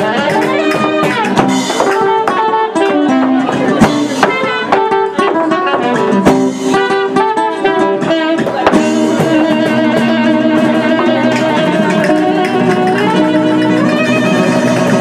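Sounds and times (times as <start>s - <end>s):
acoustic guitar strumming: 0.0s - 15.0s
saxophone holding long notes: 0.0s - 15.0s.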